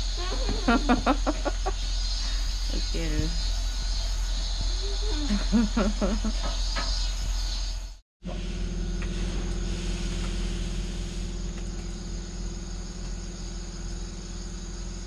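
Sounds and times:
low continuous hum: 0.0 - 3.8
insects chirping: 0.0 - 15.0.

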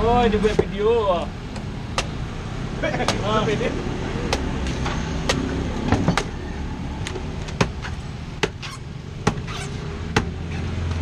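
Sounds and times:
machete chopping coconut: 3.0 - 3.3, 4.2 - 6.3, 7.5 - 10.4.

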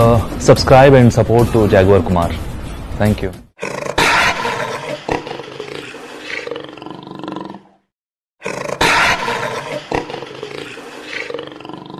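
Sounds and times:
big cat roaring: 3.6 - 7.8, 8.4 - 11.9.

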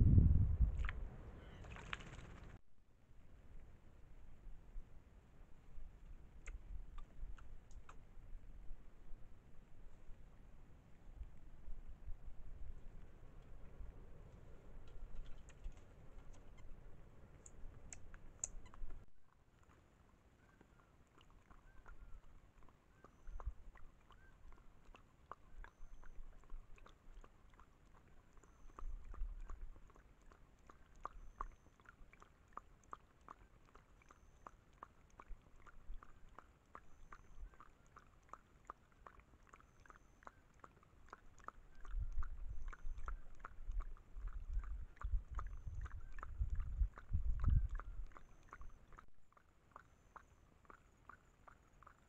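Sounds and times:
low rumbling bumps: 0.0 - 1.3
animal lapping water: 0.6 - 2.6, 5.8 - 52.0.

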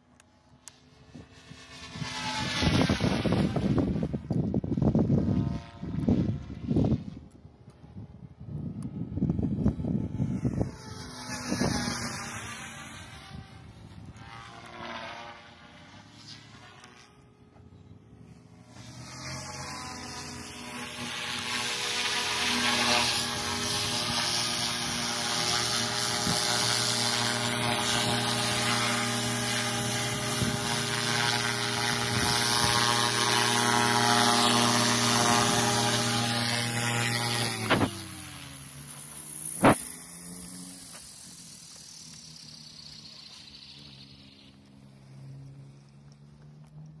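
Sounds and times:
rc helicopter rotor whine: 0.0 - 47.0.

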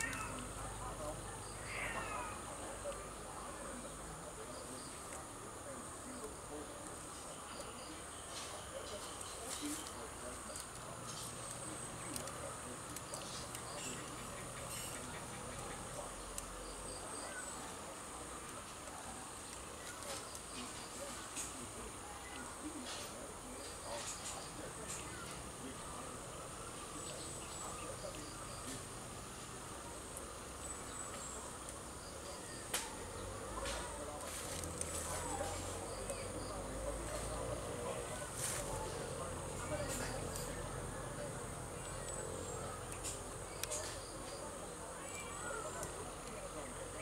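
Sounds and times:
faint outdoor background: 0.0 - 47.0
clicks of trimming twigs: 32.5 - 37.7, 41.7 - 44.4.

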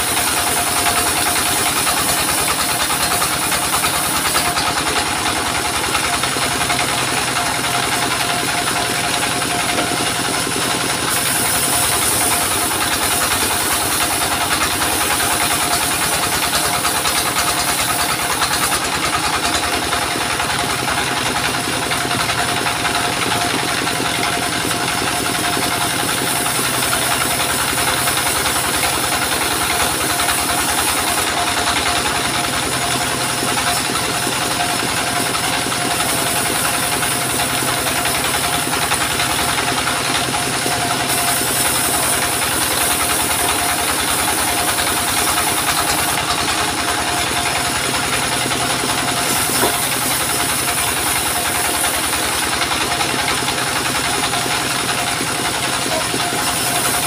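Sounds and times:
circular saw cutting wood: 0.0 - 57.0
diesel engine running: 0.0 - 57.0.

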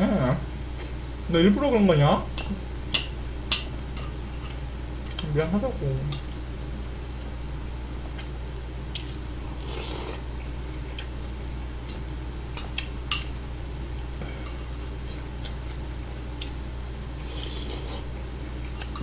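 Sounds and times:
steady low hum: 0.0 - 19.0
mouth eating noise: 8.9 - 10.3.

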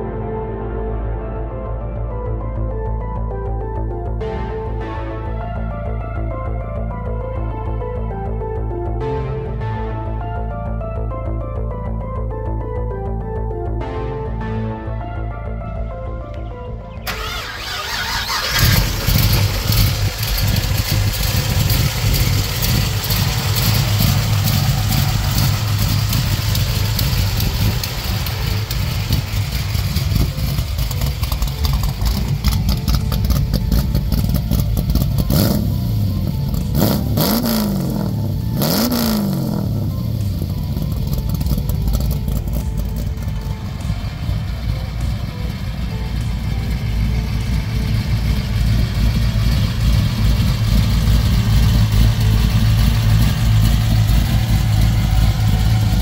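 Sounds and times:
car engine running and revving: 17.0 - 56.0.

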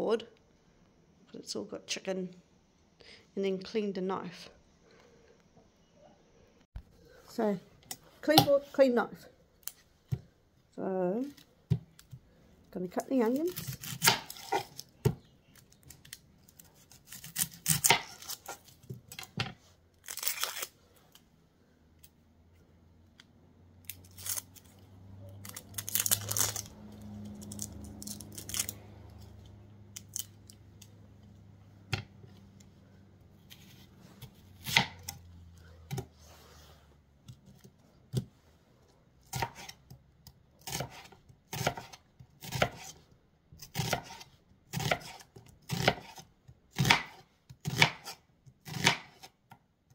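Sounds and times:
onion skin tearing: 13.2 - 14.9, 15.5 - 19.3, 20.0 - 20.8, 23.8 - 30.9
knife cutting on cutting board: 39.3 - 39.8, 40.6 - 43.0, 43.7 - 49.3.

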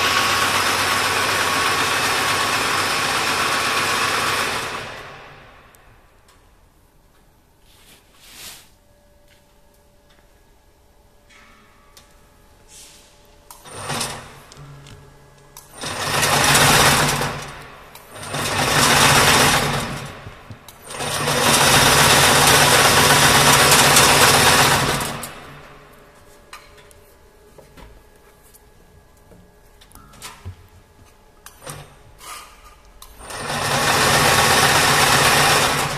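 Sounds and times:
bobbin carriers whirring: 15.6 - 25.5.

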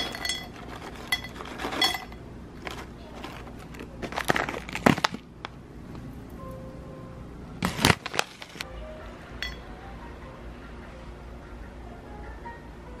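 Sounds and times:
hard snacks clattering into bowl: 0.0 - 5.2
packet crinkling: 2.6 - 5.6, 7.6 - 8.6.

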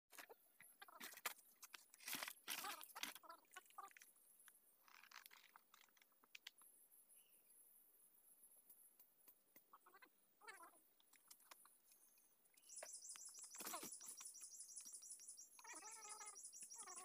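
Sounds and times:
faint crunching and rustling: 0.1 - 6.7.

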